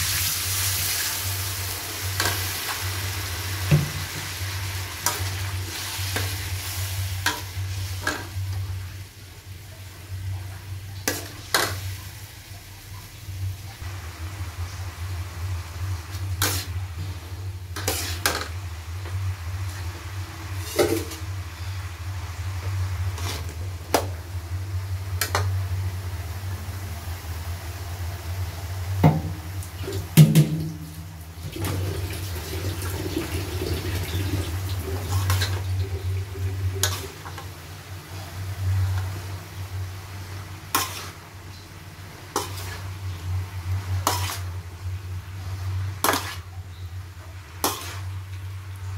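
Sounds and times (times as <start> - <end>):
food sizzling in a wok: 0.0 - 48.9
metal spatula scraping a wok: 16.1 - 18.6, 20.5 - 21.8, 23.0 - 23.6, 34.9 - 37.5, 40.3 - 41.4, 42.2 - 43.1, 43.7 - 44.7, 45.4 - 47.0, 47.6 - 48.2.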